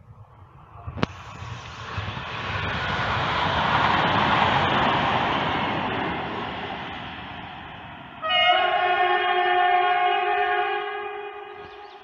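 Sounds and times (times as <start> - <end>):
train rushing past: 0.3 - 12.0.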